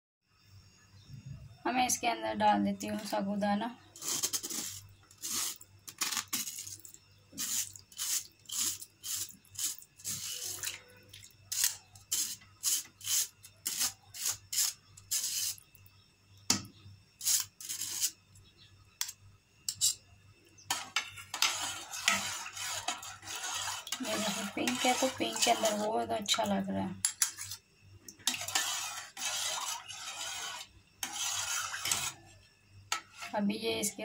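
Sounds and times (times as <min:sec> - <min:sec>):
spoon scraping metal strainer: 0:03.9 - 0:10.8, 0:11.5 - 0:15.6, 0:17.2 - 0:18.2, 0:19.7 - 0:20.0, 0:20.7 - 0:26.0, 0:28.2 - 0:32.3
spoon stirring in pot: 0:20.6 - 0:32.3, 0:32.9 - 0:33.4.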